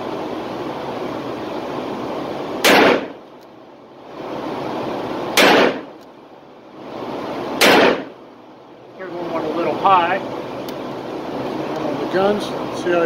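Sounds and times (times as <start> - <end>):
steady background hum: 0.0 - 13.0
revolver shots with echo: 2.6 - 3.2, 5.4 - 5.9, 7.6 - 8.2.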